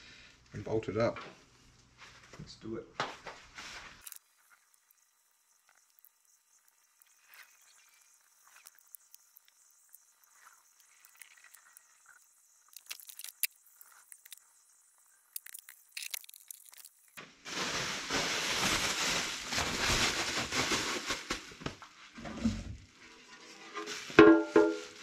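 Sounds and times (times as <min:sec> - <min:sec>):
bubble wrap crinkling: 0:15.4 - 0:22.1, 0:23.7 - 0:25.0.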